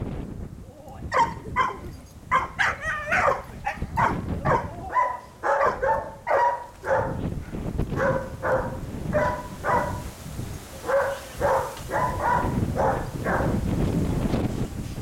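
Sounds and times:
dog barking: 1.1 - 7.3, 8.0 - 10.1, 10.8 - 13.6.

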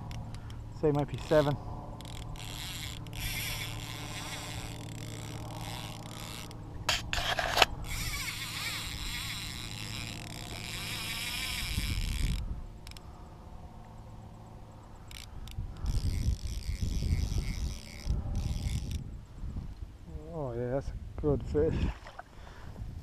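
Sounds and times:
fishing reel drag clicking: 0.0 - 13.1, 15.0 - 19.1.

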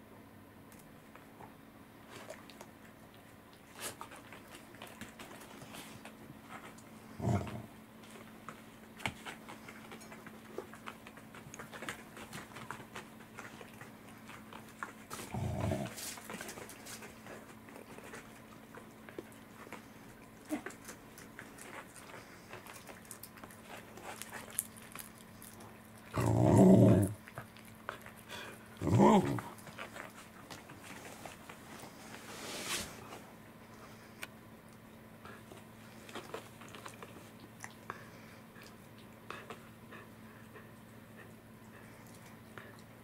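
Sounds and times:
cat chewing: 2.0 - 32.0, 33.7 - 43.0
dog grumbling: 7.1 - 7.8, 15.2 - 16.1, 26.1 - 27.2, 28.4 - 29.6.

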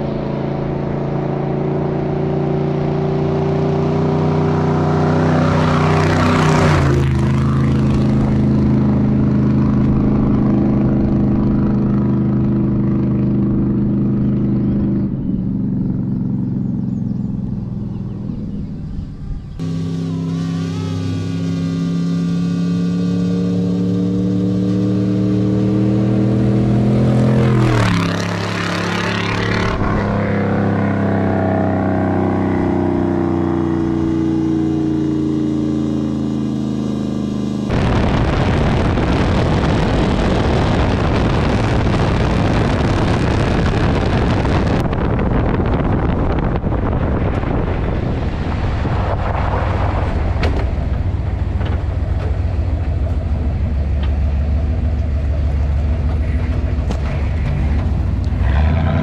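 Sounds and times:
gravel road noise: 0.0 - 59.0
truck engine driving past: 0.0 - 59.0
wind noise: 37.7 - 59.0.

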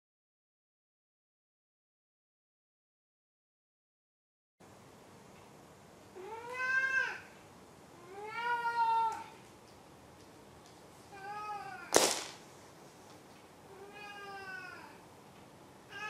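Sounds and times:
cat meowing: 6.2 - 7.3, 8.0 - 9.4, 13.7 - 15.0
sharp loud click: 11.9 - 12.4.

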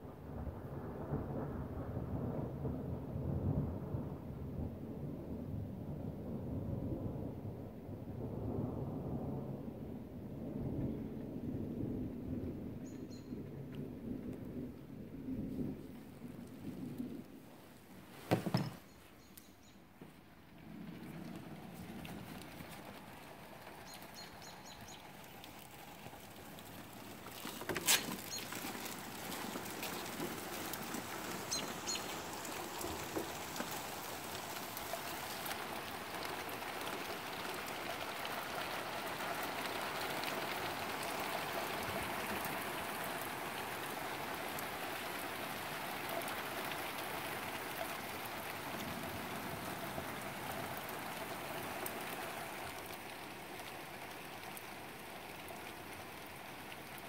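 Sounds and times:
steady rain falling: 0.0 - 57.0
high bird chirps: 23.8 - 25.0, 28.2 - 28.6, 31.5 - 32.1.

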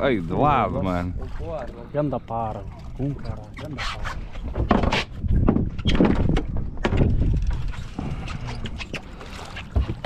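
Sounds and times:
fish flapping and banging on boat: 2.7 - 10.0.

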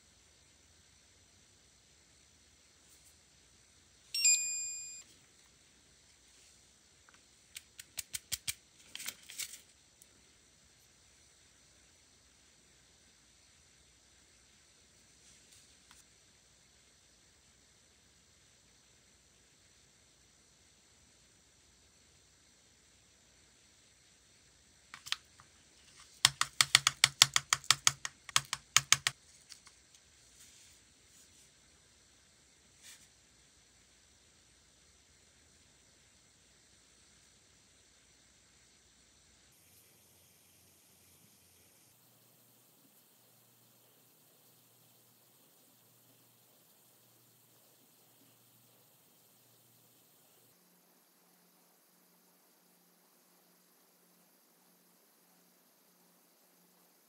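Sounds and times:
nail lamp beeping: 4.2 - 5.1
sharp plastic clicks: 7.5 - 9.1, 24.9 - 29.8.

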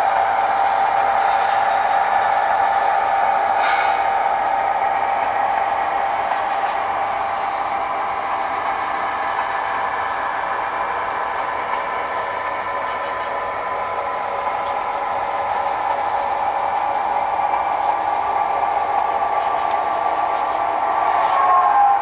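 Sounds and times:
model locomotive engine sound: 0.0 - 22.0
locomotive horn: 21.1 - 22.0.

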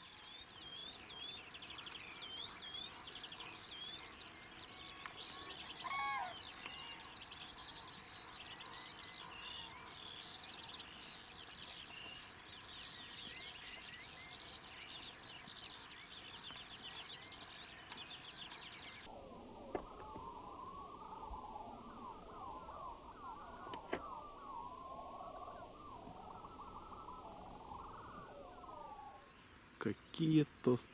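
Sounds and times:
lower gliding bird calls: 0.0 - 30.9
songbirds chirping and trilling: 0.0 - 30.9
loud curling bird call: 4.6 - 10.9.

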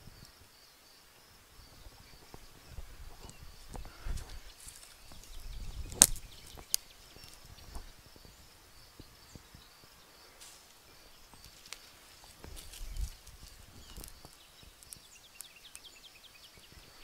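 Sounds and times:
faint ticks and crackles: 0.0 - 17.0
rustling on forest floor: 1.7 - 15.9
dry wood cracking: 2.2 - 7.9, 10.4 - 15.9.

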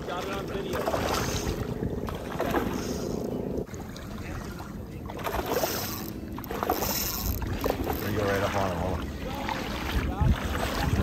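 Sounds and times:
fish splashing in water: 0.7 - 11.0.

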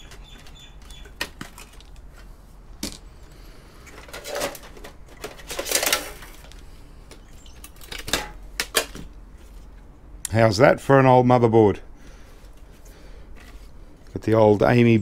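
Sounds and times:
computer parts clicking and scraping: 3.9 - 6.6.

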